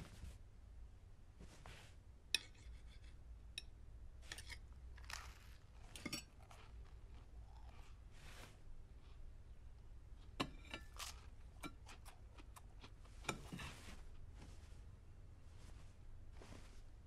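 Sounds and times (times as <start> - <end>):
faint low hum: 0.0 - 17.0
knife and fork clinking on plate: 2.4 - 3.7, 5.9 - 6.6.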